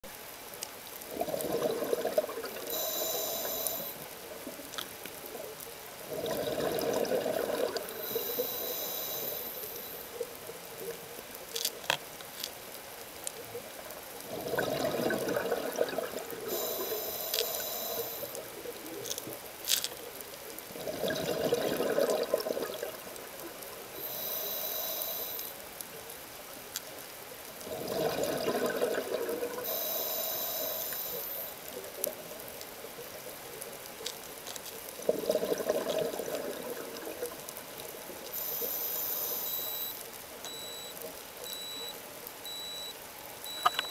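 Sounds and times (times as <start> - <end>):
exhaled bubbles underwater: 1.1 - 3.9, 6.1 - 8.5, 14.2 - 19.0, 20.7 - 24.2, 27.6 - 29.8, 35.0 - 37.8
regulator inhale hiss: 2.7 - 4.1, 7.9 - 10.1, 16.4 - 18.5, 23.9 - 25.6, 29.6 - 31.7, 38.3 - 40.0
sharp clicks: 43.5 - 43.9.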